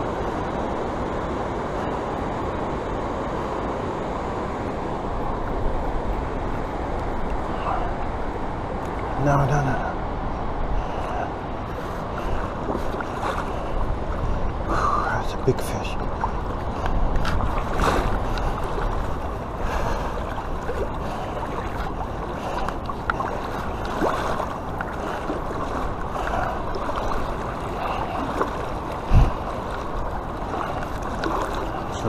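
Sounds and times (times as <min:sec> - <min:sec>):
water sloshing around legs: 0:10.8 - 0:32.0.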